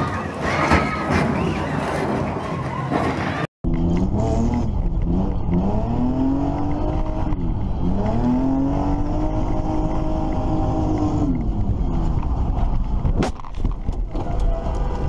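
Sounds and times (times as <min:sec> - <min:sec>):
car engine revving: 0:03.7 - 0:13.1.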